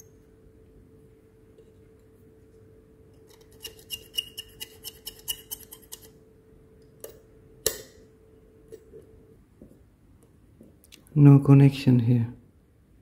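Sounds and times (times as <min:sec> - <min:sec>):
metal tool scraping metal: 0:03.3 - 0:06.1.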